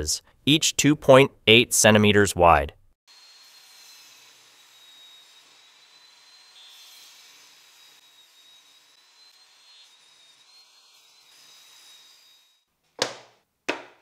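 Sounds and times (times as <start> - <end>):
table saw whine: 3.1 - 12.7.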